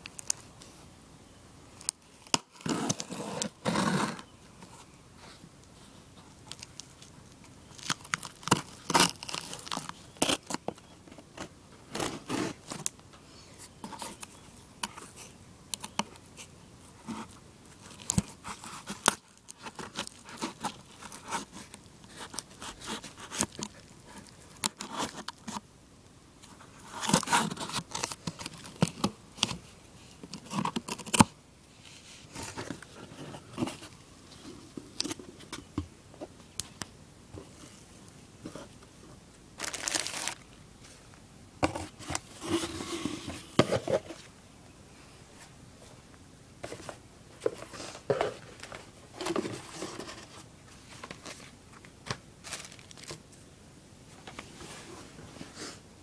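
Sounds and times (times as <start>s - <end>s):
tape and cardboard crinkling: 1.8s - 4.9s, 6.1s - 13.0s, 13.7s - 25.6s, 26.4s - 35.8s, 39.6s - 41.0s, 46.6s - 53.4s.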